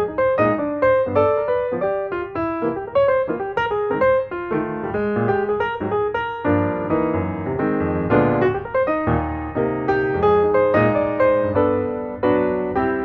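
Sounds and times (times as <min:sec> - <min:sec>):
piano playing notes and chords: 0:00.0 - 0:13.0.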